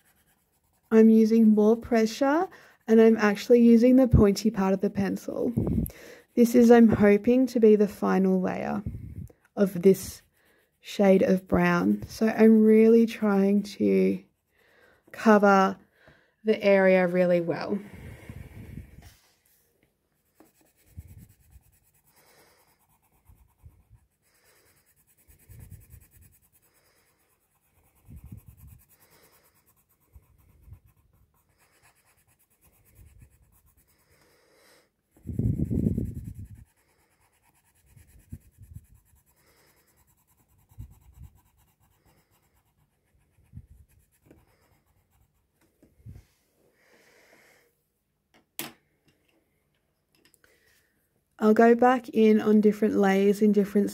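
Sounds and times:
pencil scratching on paper: 0.0 - 8.8, 9.6 - 15.5, 20.2 - 45.6.

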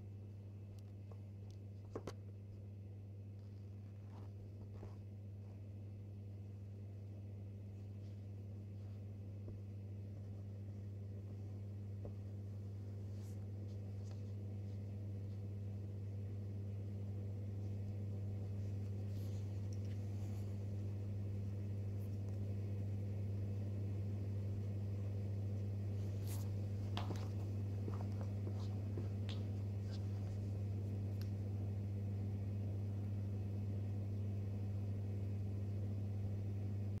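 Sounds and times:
low electrical hum: 0.0 - 37.0
soft fabric rustles: 0.9 - 6.3, 7.6 - 16.2, 16.8 - 23.6, 24.2 - 31.6.

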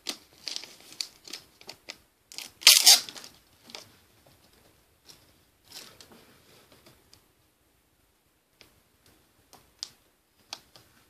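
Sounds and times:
plastic sleeve crinkling: 0.0 - 3.9.

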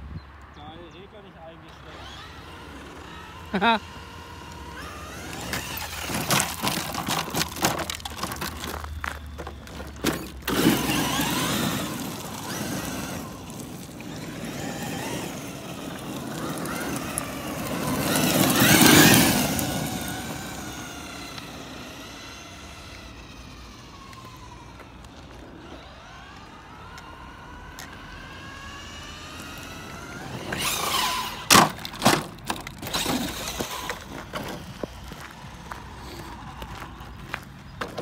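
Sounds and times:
rc truck rushing over gravel: 0.6 - 38.0
electric motor whining: 1.5 - 37.5
gravel crunches and knocks: 5.2 - 21.7, 31.6 - 38.0.

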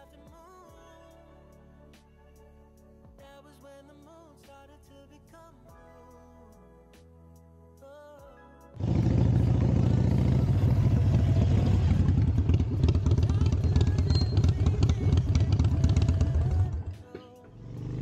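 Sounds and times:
motorcycle engine running: 8.8 - 16.9, 17.6 - 18.0.

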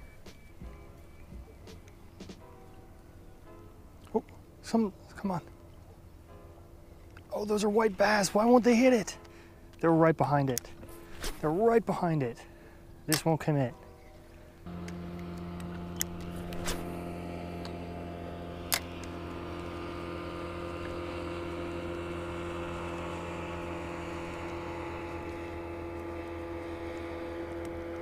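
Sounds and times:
electric motor humming: 14.6 - 28.0.

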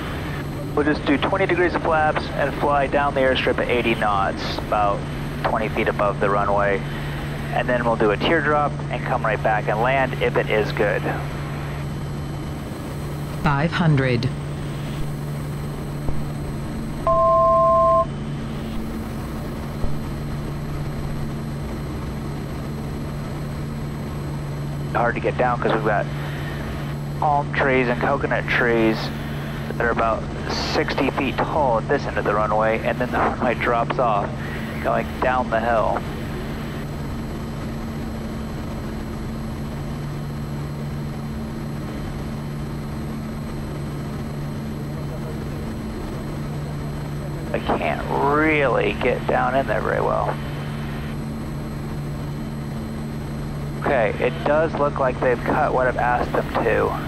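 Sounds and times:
turboprop engine droning: 0.0 - 57.0
two-note electronic tone: 17.0 - 18.1.

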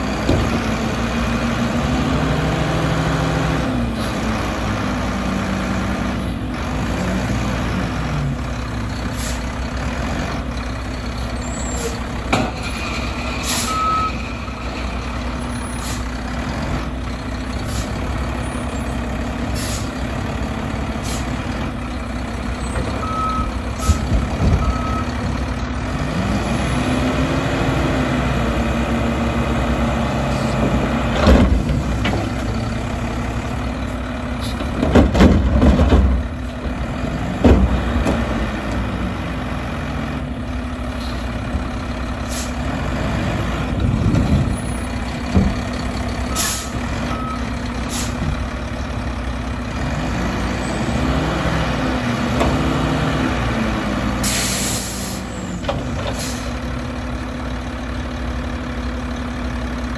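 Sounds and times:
diesel engine revving: 0.0 - 59.9
metal dumpster clunks: 22.6 - 25.4, 30.7 - 32.6, 34.4 - 38.4.

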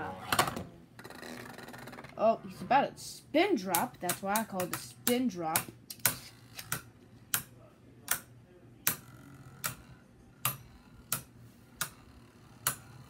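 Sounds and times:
plastic spinning tops clacking: 9.6 - 13.0.

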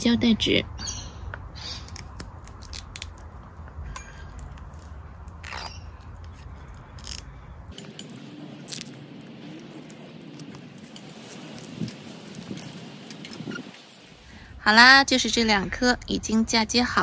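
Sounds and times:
tape clicks and plastic rustles: 1.8 - 9.0.

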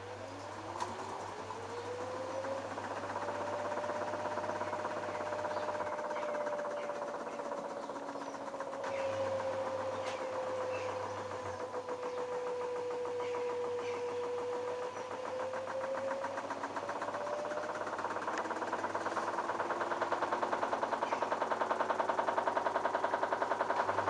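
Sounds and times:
washing machine motor whine: 0.0 - 24.0
washing machine drum hum: 0.5 - 24.0.

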